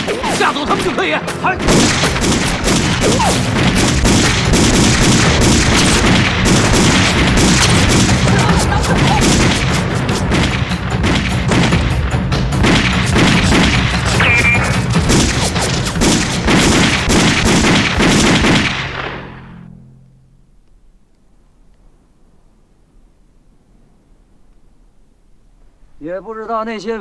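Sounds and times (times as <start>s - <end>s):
rifle and pistol gunfire: 0.0s - 19.6s
background music: 0.0s - 20.6s
person shouting: 3.1s - 3.4s.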